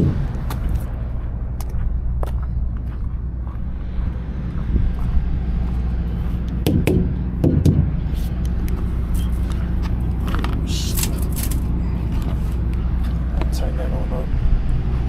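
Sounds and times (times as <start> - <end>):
diesel truck engine running: 0.0 - 15.0.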